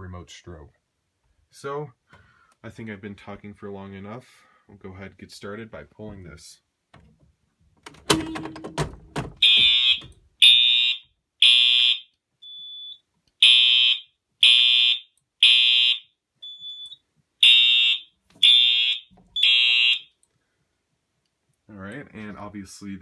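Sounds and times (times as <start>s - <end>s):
fire alarm horn blasts: 9.4s - 12.1s, 12.8s - 16.8s, 17.4s - 20.1s.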